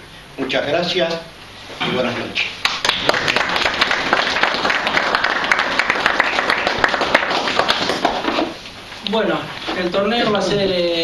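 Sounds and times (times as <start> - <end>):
people clapping: 2.6 - 8.6.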